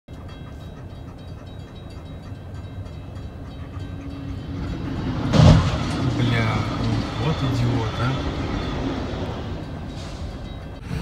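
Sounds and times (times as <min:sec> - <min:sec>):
railroad crossing bell ringing: 0:00.1 - 0:11.0
train approaching: 0:00.1 - 0:11.0
loud crash of train hitting car: 0:05.2 - 0:06.9.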